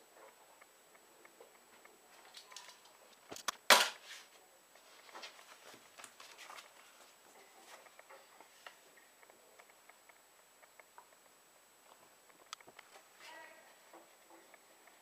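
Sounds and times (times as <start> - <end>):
paper rustling and folding: 4.0 - 8.8
sharp clicks: 9.2 - 11.3.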